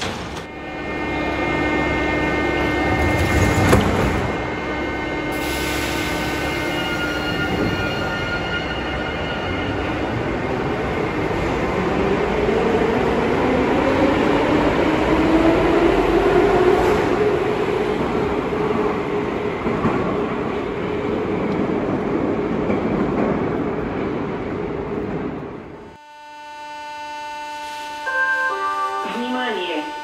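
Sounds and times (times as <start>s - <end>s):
train wheels rumbling on rails: 0.0s - 25.8s.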